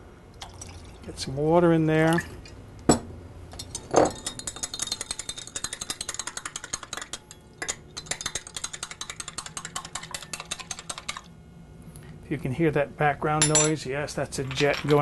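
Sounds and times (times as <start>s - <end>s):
teaspoon clinking against glass: 3.6s - 9.1s.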